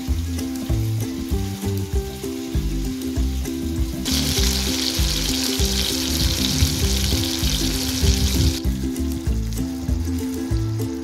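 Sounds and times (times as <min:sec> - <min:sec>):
fish frying in hot oil: 0:00.0 - 0:11.0.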